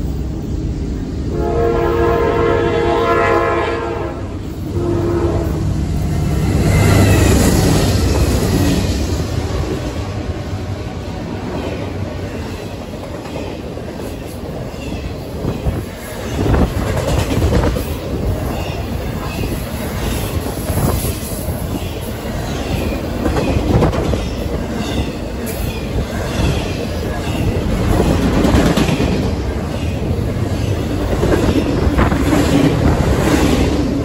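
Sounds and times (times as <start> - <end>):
freight train wheels rumbling: 0.0 - 34.0.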